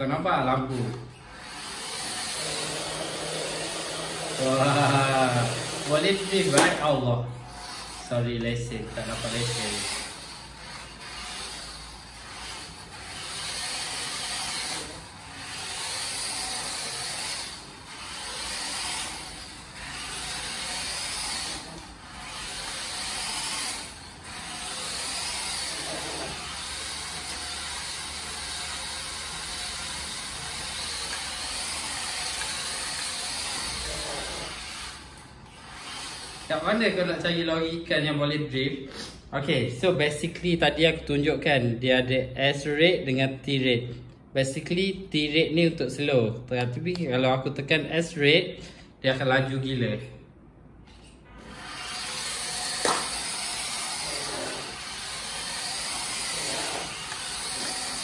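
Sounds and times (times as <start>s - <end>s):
toy car electric motor whirring: 0.7s - 37.1s, 51.0s - 58.0s.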